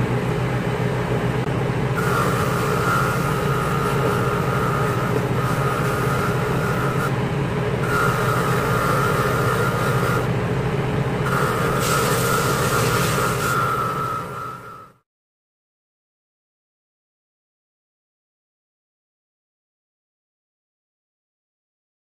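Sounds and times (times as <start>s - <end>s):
bench grinder humming: 0.0s - 15.0s
metal grinding on wheel: 2.0s - 7.1s, 7.8s - 10.3s, 11.2s - 14.9s.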